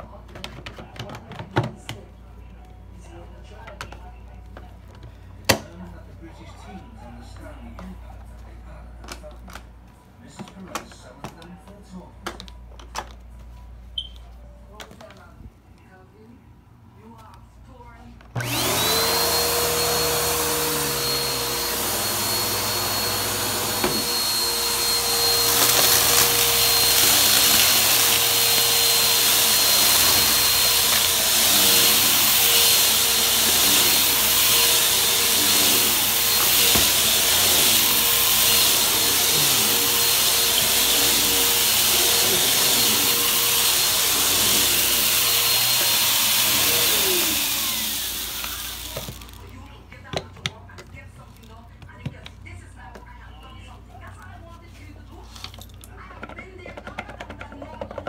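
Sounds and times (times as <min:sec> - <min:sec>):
vacuum cleaner motor whining: 0:18.4 - 0:49.5.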